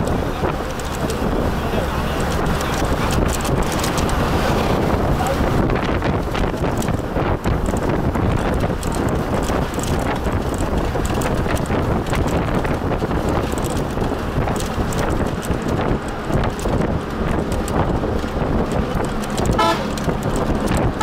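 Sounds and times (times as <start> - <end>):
vehicle rumble: 0.0 - 21.0
knocks and rattles: 2.2 - 21.0
short horn toot: 19.6 - 19.9.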